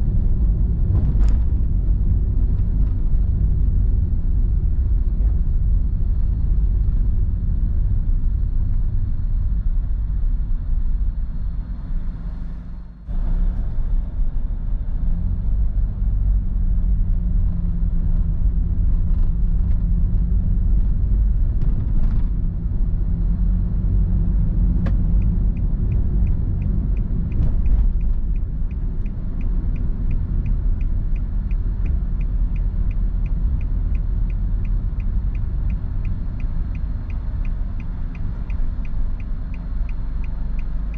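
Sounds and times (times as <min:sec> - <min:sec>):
car cabin road and engine rumble: 0:00.0 - 0:40.9
turn signal ticking: 0:22.5 - 0:40.9.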